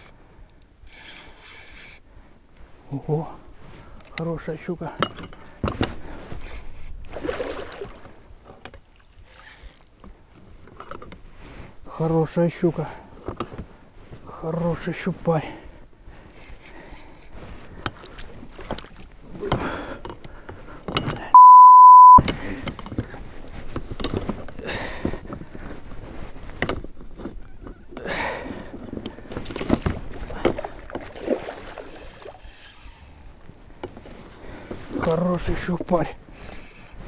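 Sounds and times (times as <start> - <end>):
fishing reel knocks and clicks: 9.1 - 10.1, 16.3 - 18.0, 31.5 - 34.3
censor bleep: 21.4 - 22.2.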